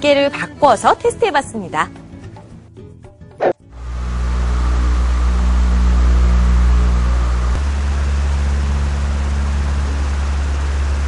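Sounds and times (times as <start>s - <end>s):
electric fan humming: 3.7s - 11.0s
rushing air from fan: 3.8s - 11.0s.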